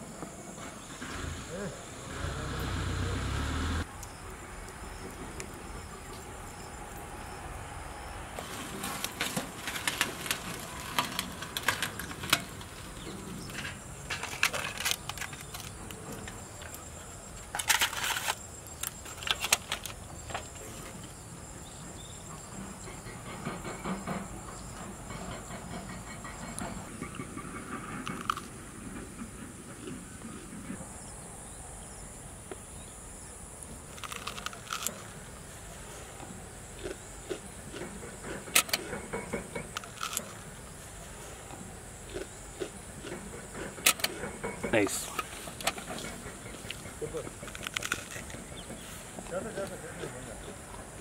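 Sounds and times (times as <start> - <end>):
faint insect chirping: 0.0 - 51.0
metal spatula scraping foil: 8.4 - 12.9.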